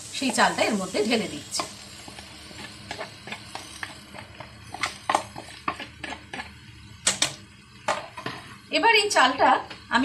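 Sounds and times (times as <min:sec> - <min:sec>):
spatula scraping pan: 0:01.6 - 0:06.5.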